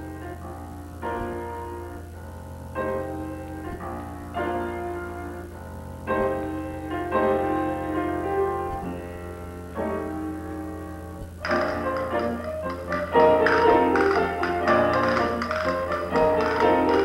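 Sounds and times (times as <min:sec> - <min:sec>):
low electrical hum: 0:00.0 - 0:17.0
piano chords: 0:00.0 - 0:17.0.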